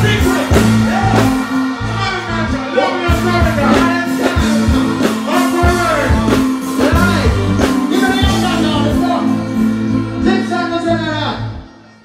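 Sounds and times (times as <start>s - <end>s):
live reggae band: 0.0s - 12.0s
man singing: 2.8s - 9.5s.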